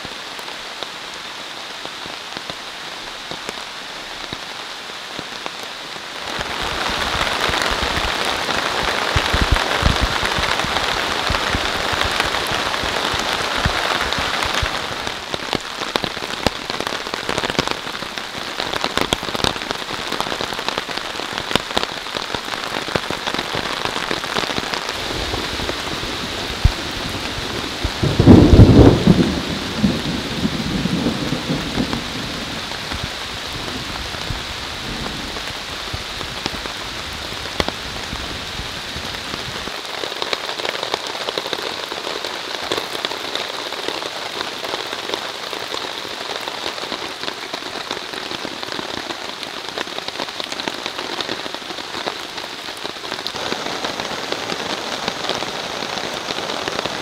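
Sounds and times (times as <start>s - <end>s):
heavy rain on a tarp: 0.0s - 57.0s
thunder rumbling: 24.9s - 39.7s.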